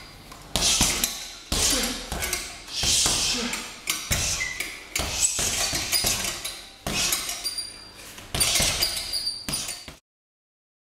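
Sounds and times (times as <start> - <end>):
punches hitting heavy bag: 0.5 - 3.5, 5.0 - 7.3, 8.3 - 9.8
metal chain clinking: 5.6 - 10.0.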